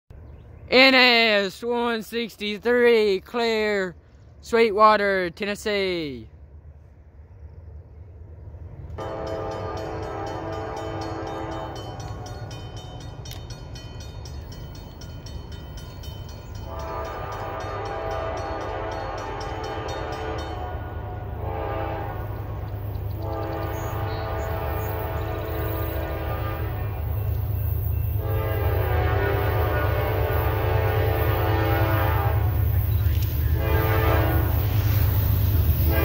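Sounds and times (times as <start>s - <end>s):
low train rumble: 0.1s - 36.0s
train horn blasts: 9.0s - 12.5s, 16.6s - 22.6s, 23.2s - 27.2s, 28.0s - 35.2s, 35.8s - 36.0s.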